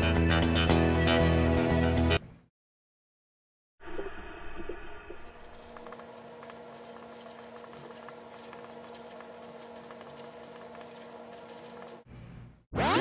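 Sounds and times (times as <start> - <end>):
marker pen scratching on paper: 5.3 - 12.1.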